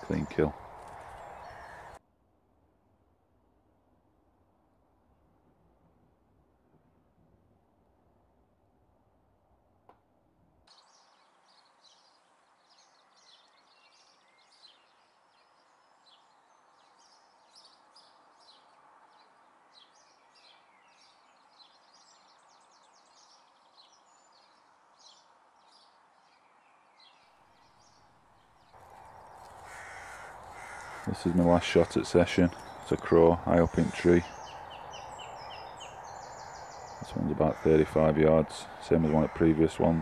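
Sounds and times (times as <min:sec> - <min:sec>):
songbirds chirping: 0:00.0 - 0:02.0, 0:10.7 - 0:40.0.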